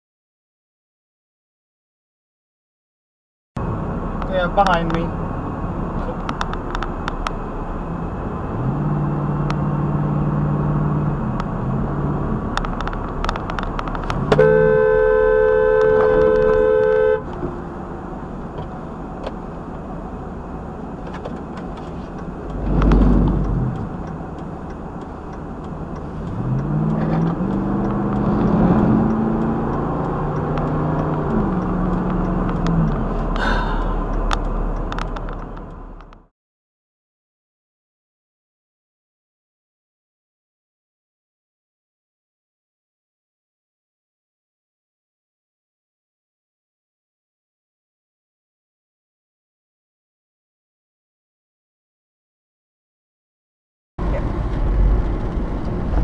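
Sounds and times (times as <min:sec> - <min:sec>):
car engine and road noise: 0:03.6 - 0:36.3, 0:54.0 - 0:56.0
car horn: 0:14.2 - 0:17.4.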